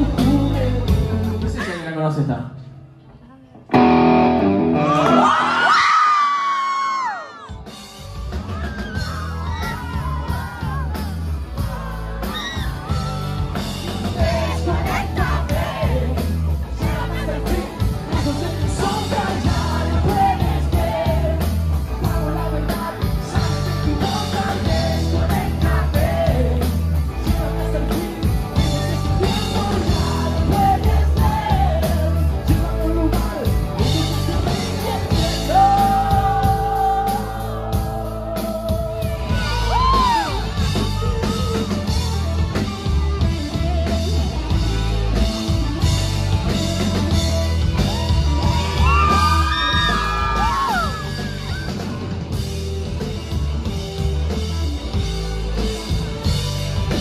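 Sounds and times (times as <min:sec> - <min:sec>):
rock band playing loudly: 0:00.0 - 0:01.9, 0:03.7 - 0:57.0
person singing and yelling: 0:08.7 - 0:41.7.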